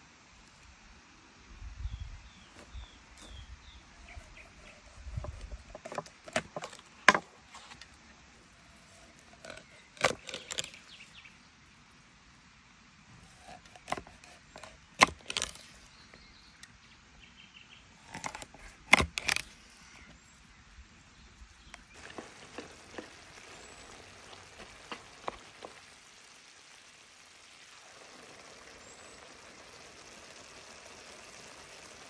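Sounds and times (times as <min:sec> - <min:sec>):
pot of vegetables cooking hiss: 0:00.0 - 0:06.2, 0:19.7 - 0:32.0
wooden spoon stirring pot: 0:21.9 - 0:25.9.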